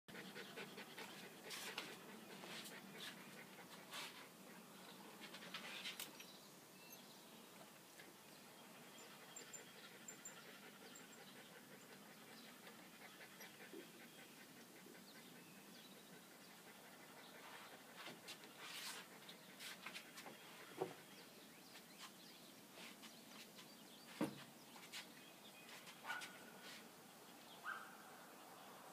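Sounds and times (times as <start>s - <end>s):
small dog panting: 0.1s - 6.0s, 9.0s - 21.2s.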